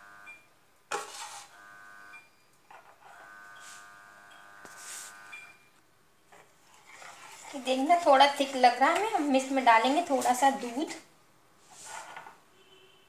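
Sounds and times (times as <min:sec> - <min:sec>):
electrical buzz: 0:01.2 - 0:02.3, 0:03.0 - 0:05.6.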